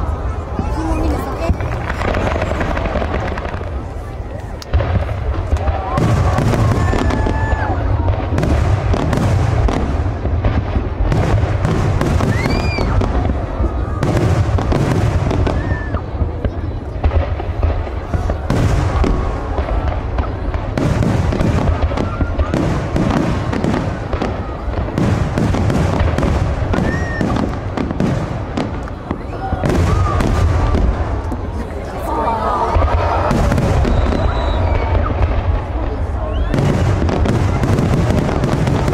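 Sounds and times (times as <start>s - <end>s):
fireworks booms and crackles: 0.0s - 38.9s
firework whistle: 12.1s - 13.1s, 26.7s - 27.5s, 33.0s - 35.3s, 36.1s - 37.7s.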